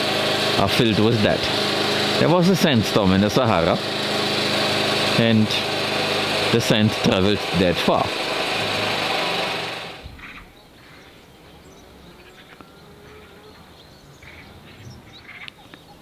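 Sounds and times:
loud machine humming: 0.0 - 10.3
faint bird chirps: 10.2 - 16.0.

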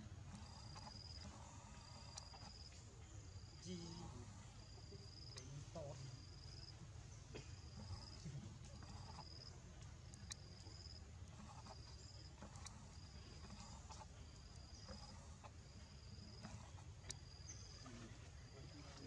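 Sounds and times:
insect chirping: 0.0 - 19.0
faint clicks: 7.8 - 19.0.

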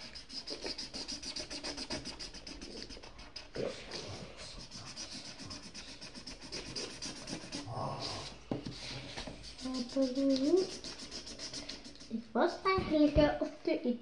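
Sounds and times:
pen scratching on paper: 0.0 - 12.3.

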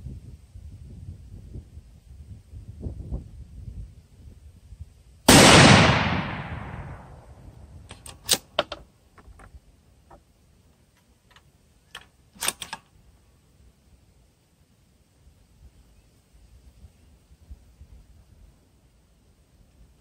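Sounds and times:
rifle shot echoing: 5.3 - 7.4
rifle bolt clicks: 7.9 - 8.8, 11.3 - 12.9.

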